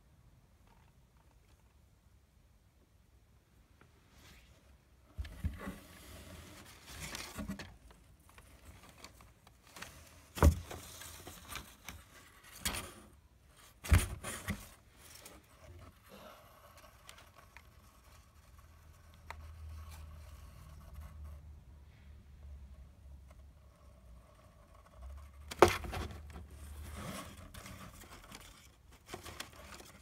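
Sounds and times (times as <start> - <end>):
knocks against cardboard box: 10.4 - 10.8.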